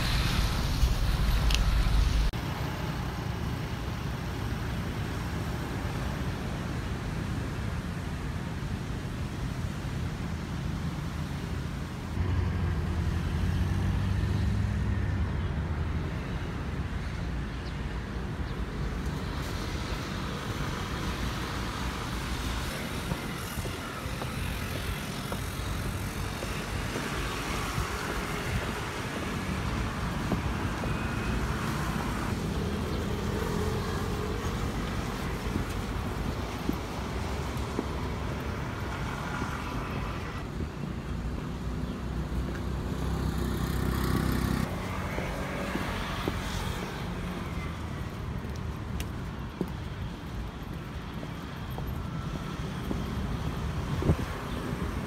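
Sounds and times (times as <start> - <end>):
low rumble: 0.0 - 2.4
city traffic: 0.0 - 55.0.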